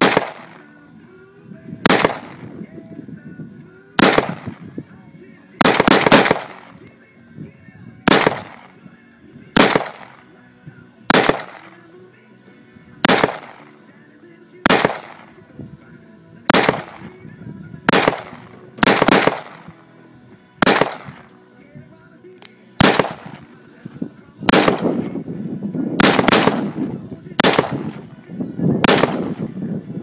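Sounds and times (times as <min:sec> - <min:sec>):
rifle shots with echo: 0:00.0 - 0:00.7, 0:01.8 - 0:02.6, 0:04.0 - 0:04.7, 0:05.6 - 0:06.9, 0:08.0 - 0:08.8, 0:09.5 - 0:10.3, 0:11.1 - 0:11.8, 0:13.0 - 0:13.8, 0:14.6 - 0:15.5, 0:16.5 - 0:17.3, 0:17.9 - 0:19.8, 0:20.6 - 0:21.3, 0:22.8 - 0:23.5, 0:24.5 - 0:25.2, 0:26.0 - 0:28.1, 0:28.8 - 0:29.5.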